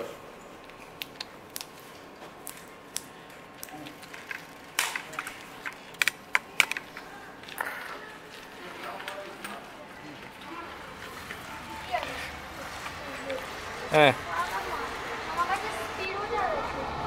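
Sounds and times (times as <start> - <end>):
blister pack clicks and crackles: 0.6 - 9.3.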